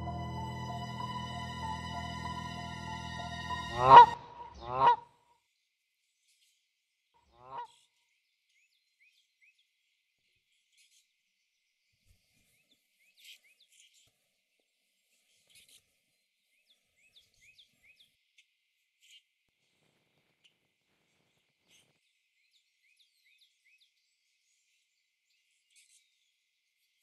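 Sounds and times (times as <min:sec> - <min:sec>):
goose-like honk: 0:00.0 - 0:05.1, 0:07.4 - 0:07.8.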